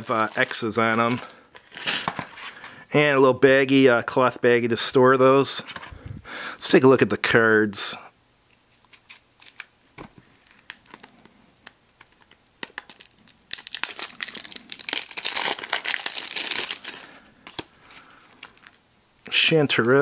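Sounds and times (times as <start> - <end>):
plastic wrap crinkling: 0.0 - 2.6, 8.5 - 18.8.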